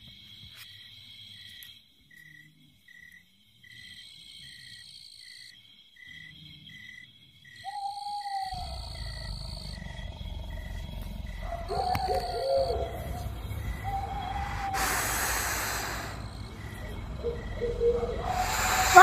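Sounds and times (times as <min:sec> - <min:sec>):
crickets trilling: 0:00.0 - 0:19.0
owl-like hoot: 0:07.7 - 0:09.9, 0:11.4 - 0:19.0
low rumble: 0:08.6 - 0:18.9.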